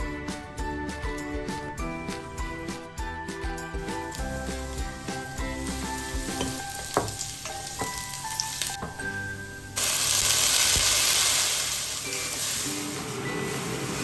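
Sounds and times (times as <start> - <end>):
light music: 0.0 - 14.0
vegetables sizzling in oil: 3.8 - 14.0.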